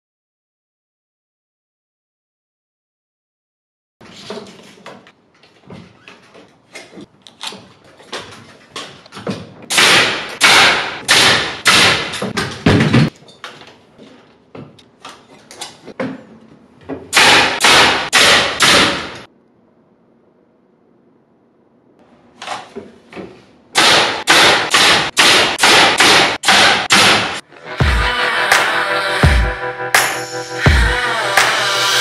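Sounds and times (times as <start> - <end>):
nail gun firing: 9.7 - 12.9, 17.1 - 19.3, 23.8 - 27.4
knocks and clatter: 12.0 - 17.2.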